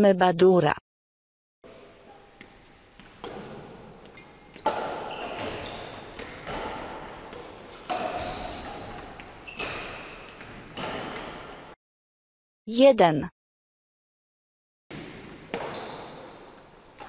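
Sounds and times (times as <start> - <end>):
shoes squeaking on court floor: 1.7 - 11.8, 15.0 - 17.0
racket striking shuttlecock: 2.4 - 11.2, 15.0 - 17.0.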